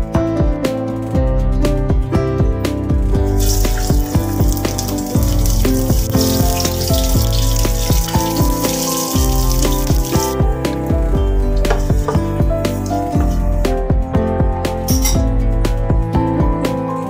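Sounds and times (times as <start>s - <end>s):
background music: 0.0s - 17.0s
spices sizzling in oil: 3.2s - 10.9s.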